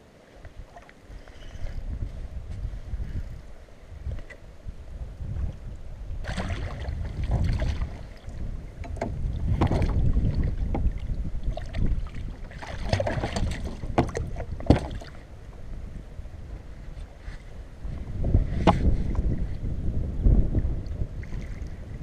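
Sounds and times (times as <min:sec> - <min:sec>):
wind buffeting microphone: 0:00.4 - 0:22.0
water slapping and splashing: 0:06.2 - 0:15.3.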